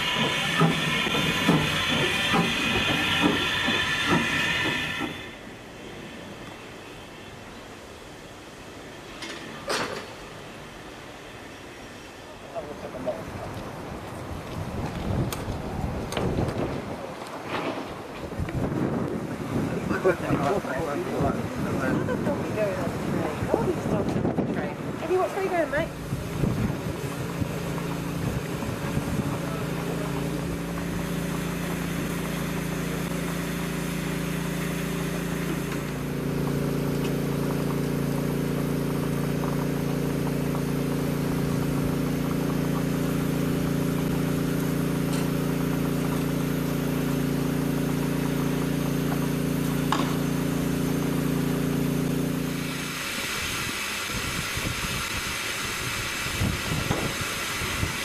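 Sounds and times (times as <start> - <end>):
engine running: 0.0 - 5.8, 18.4 - 58.0.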